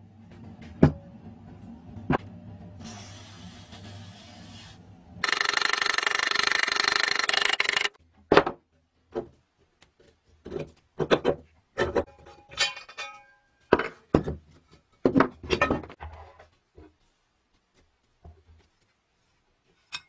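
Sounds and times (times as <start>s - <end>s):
metal parts knocking and clinking: 5.2s - 8.0s, 10.6s - 14.2s.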